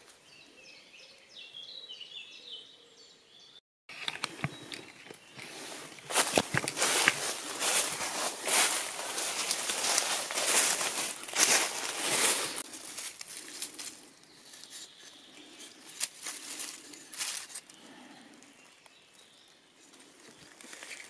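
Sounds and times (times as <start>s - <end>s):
soft leaf rustles: 4.6s - 18.9s
footsteps crunching dry leaves: 5.3s - 17.8s.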